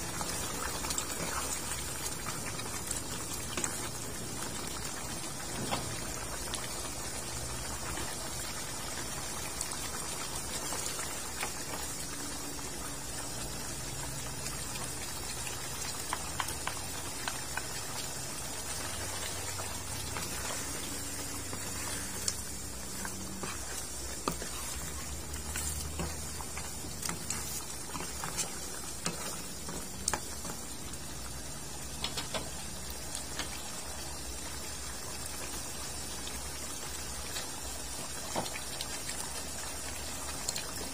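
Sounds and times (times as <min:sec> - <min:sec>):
sauce bubbling with pops: 0:12.8 - 0:34.0
wooden spatula stirring in wok: 0:14.4 - 0:31.3.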